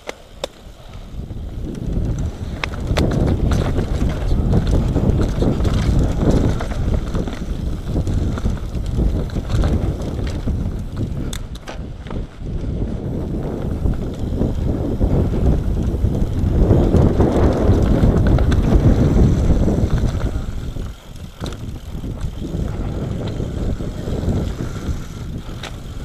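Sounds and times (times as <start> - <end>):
bike rattling and clicking: 0.0 - 26.0
wind buffeting microphone: 0.3 - 26.0
tyres rumbling over dirt: 1.1 - 26.0.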